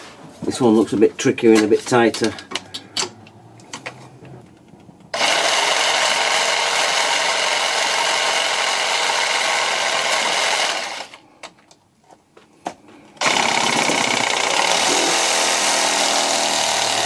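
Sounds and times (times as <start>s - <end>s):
power saw cutting steel: 5.1s - 11.2s, 13.2s - 17.0s.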